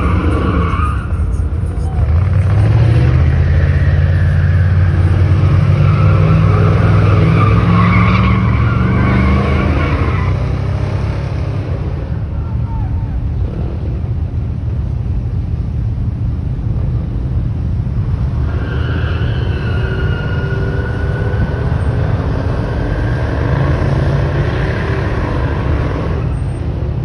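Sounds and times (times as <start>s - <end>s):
tyres squealing: 0.0s - 10.6s, 18.4s - 26.6s
truck engines rumbling: 0.0s - 27.0s
engine revving: 2.1s - 12.1s, 19.5s - 26.4s.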